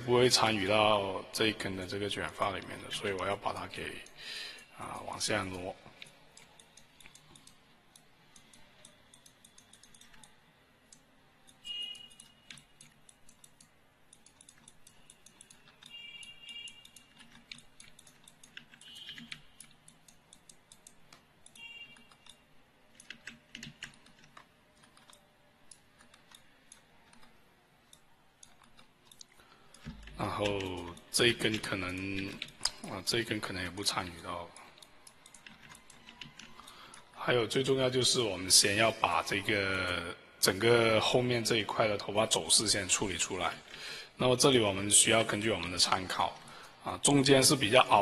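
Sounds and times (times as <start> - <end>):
mouse and keyboard clicking: 2.4 - 37.2.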